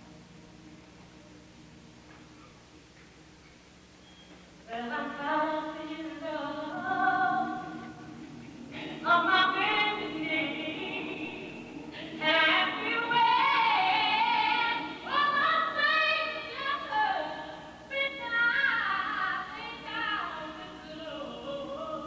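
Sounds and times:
choir singing: 8.8s - 16.4s.

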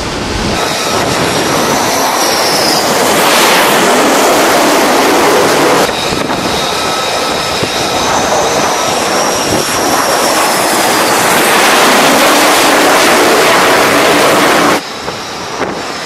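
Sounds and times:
high jet engine whine: 0.0s - 16.0s
jet fighter roar: 0.0s - 16.0s.

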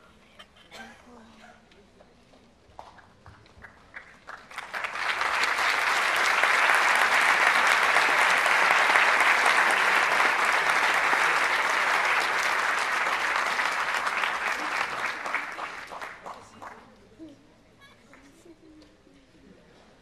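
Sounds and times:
audience applauding: 3.6s - 16.9s.

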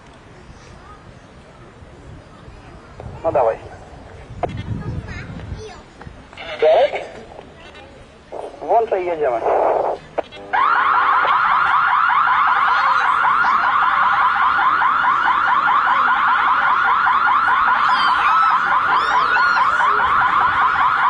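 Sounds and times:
electronic alarm tone sweeping upward: 10.5s - 21.0s.

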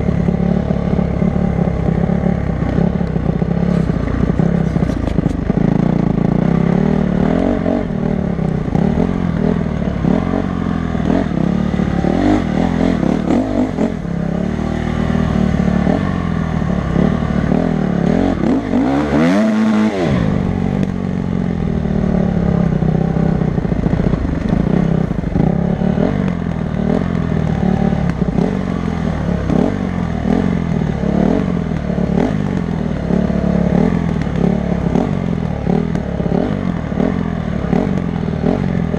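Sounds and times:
bike rattling over bumps: 0.0s - 10.2s
dirt bike engine revving: 0.0s - 38.9s.

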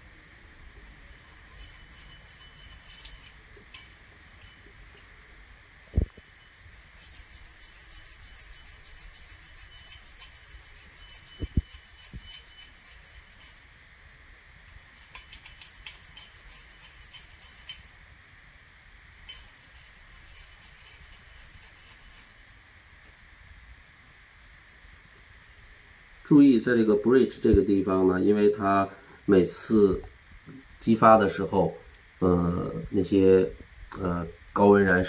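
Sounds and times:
wire brush scrubbing metal: 0.8s - 5.0s, 6.0s - 13.6s, 14.7s - 17.9s, 19.2s - 22.4s.

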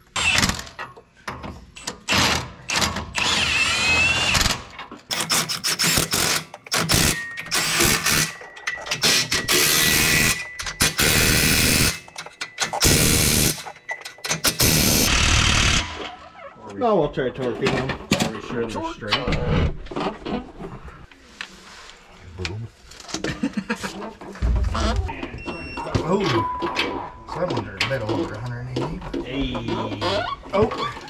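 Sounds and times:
impact wrench bursts: 2.1s - 16.1s.

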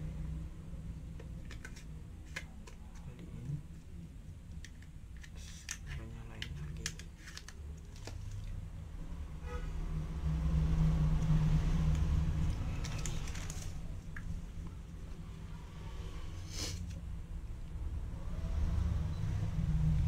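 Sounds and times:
hands handling plastic camera: 1.2s - 3.1s, 4.5s - 8.5s, 12.8s - 14.2s
paper rustling: 6.8s - 8.5s, 12.6s - 13.9s
vehicle passing by: 8.9s - 14.0s, 17.8s - 20.0s.

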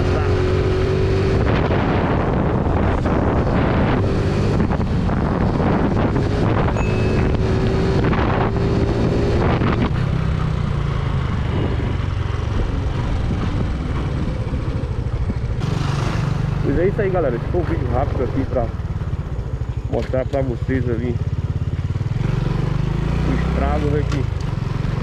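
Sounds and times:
wind noise on microphone: 0.0s - 16.6s
motorcycle engine drone: 0.0s - 25.0s.

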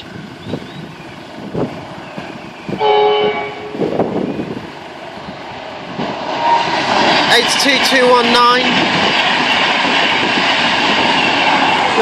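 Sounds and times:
train horn blast: 2.8s - 3.9s.

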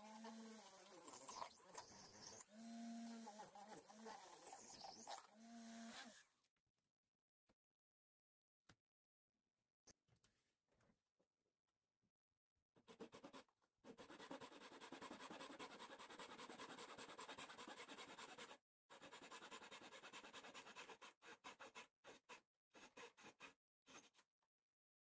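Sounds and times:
small saw cutting wood: 0.0s - 6.3s.

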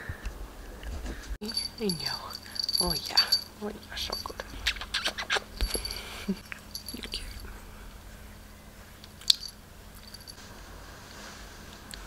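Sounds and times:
rustles of fur and hands: 10.0s - 11.9s.

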